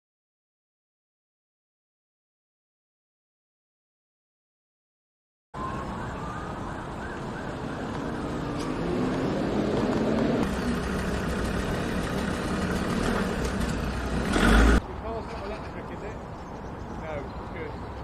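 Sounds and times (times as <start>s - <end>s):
vehicle passing on wet road: 8.0s - 14.8s.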